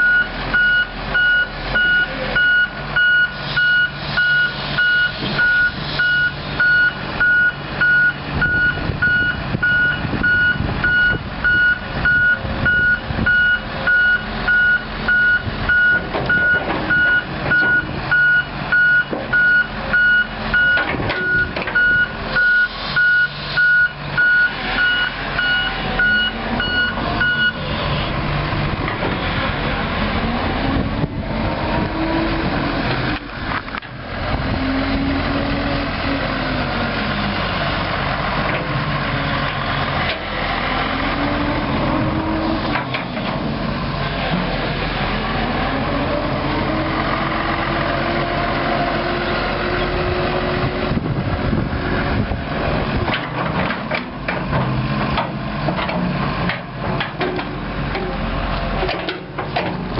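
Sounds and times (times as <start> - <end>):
excavator travel alarm beeping: 0.0 - 28.0
diesel engine and hydraulics running: 0.0 - 59.9.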